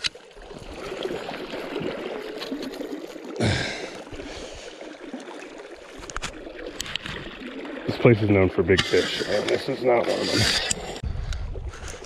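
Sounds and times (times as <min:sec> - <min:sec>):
river water rippling over rocks: 0:00.0 - 0:11.0.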